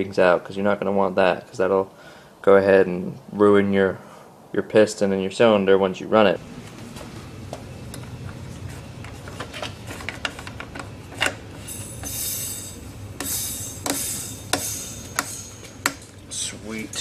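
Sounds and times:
steady low hum: 0.0 - 17.0
compressed air hissing: 11.6 - 16.0.

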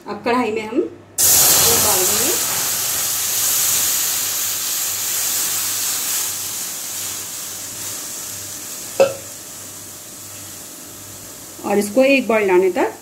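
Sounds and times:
milk hissing in a hot pan: 1.2 - 13.0.

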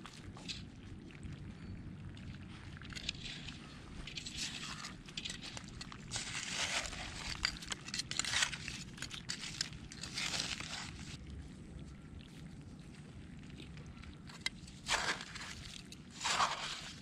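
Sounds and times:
shells crunching and clattering: 4.0 - 11.1.

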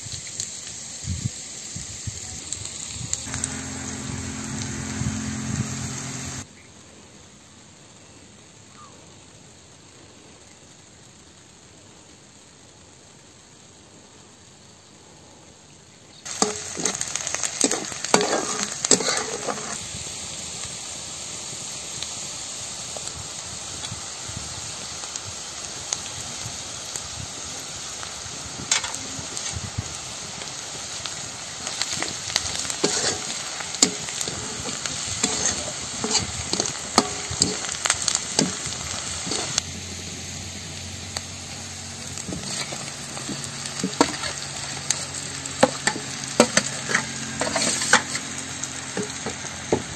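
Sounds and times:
onions sizzling in hot oil: 0.0 - 15.0, 15.8 - 49.9
spatula scraping and clinking pan: 17.7 - 19.8, 32.8 - 37.7, 45.6 - 48.2.

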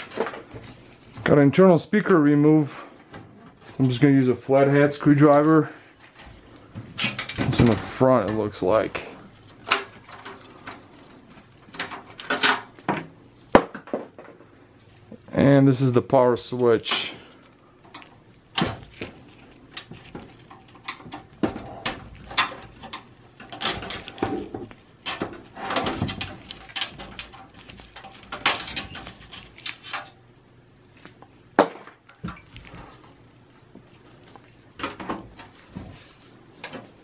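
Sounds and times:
metallic clicks and rattles: 9.4 - 12.8, 17.8 - 30.2.

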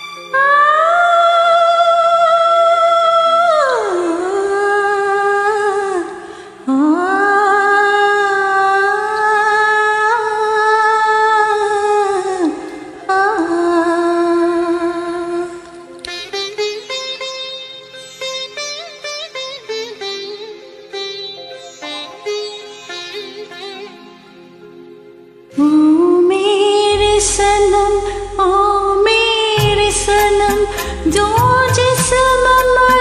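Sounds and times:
high voice singing long notes: 25.5 - 33.0.

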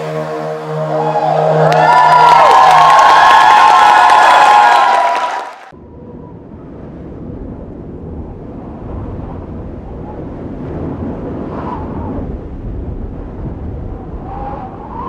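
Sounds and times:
low rumbling noise: 0.0 - 15.0
faint whistling tones: 14.2 - 15.0.

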